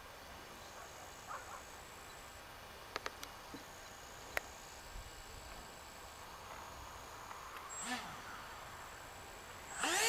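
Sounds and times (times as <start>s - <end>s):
high-pitched insect calls: 3.4s - 10.0s.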